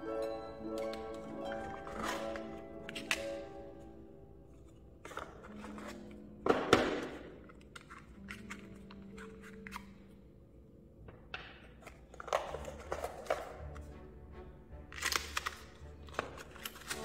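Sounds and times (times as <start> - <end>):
faint background music: 0.0 - 17.0
cardboard and paper rustling: 1.6 - 3.4, 4.5 - 10.0, 11.8 - 13.6, 15.0 - 17.0.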